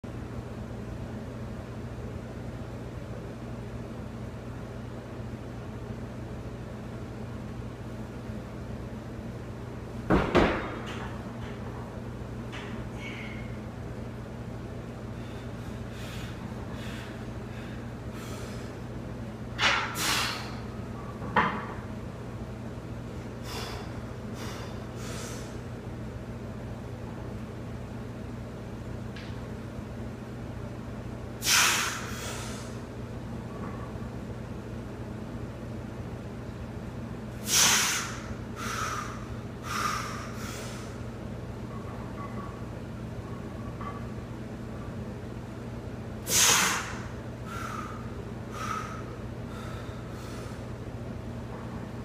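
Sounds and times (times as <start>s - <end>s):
man breathing heavily: 15.1s - 18.8s, 23.4s - 25.6s, 37.5s - 41.0s, 46.3s - 50.7s
short snort: 31.4s - 32.6s, 46.3s - 46.9s
low hum: 38.1s - 46.2s.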